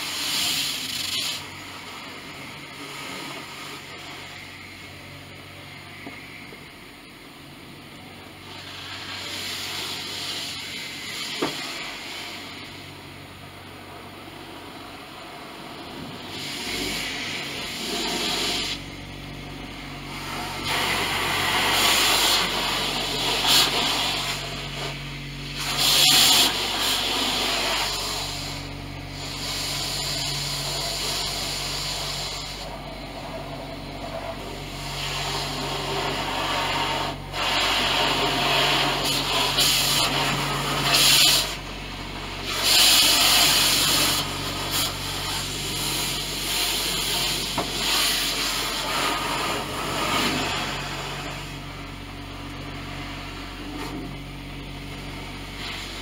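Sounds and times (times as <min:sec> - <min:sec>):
pressure-washer spray hiss: 0:00.0 - 0:04.8, 0:08.4 - 0:12.9, 0:16.2 - 0:18.9, 0:20.0 - 0:32.7, 0:34.6 - 0:41.6, 0:42.3 - 0:51.8, 0:55.5 - 0:56.0
steady low hum: 0:00.0 - 0:56.0.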